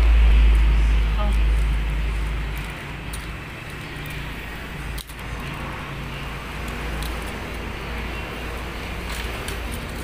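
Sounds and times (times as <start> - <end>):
low background rumble: 0.0 - 7.4.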